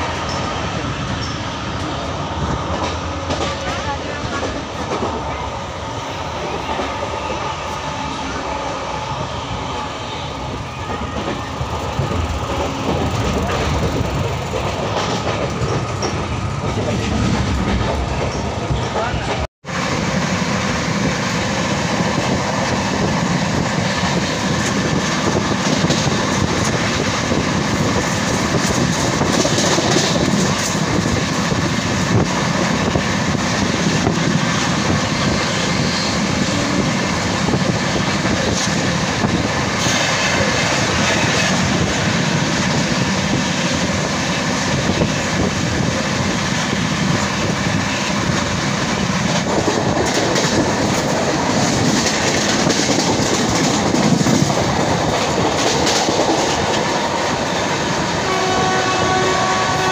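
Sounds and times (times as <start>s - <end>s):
train wheels rumbling on rails: 0.0s - 59.9s
clatter over rail joints: 28.0s - 31.4s, 49.2s - 57.1s.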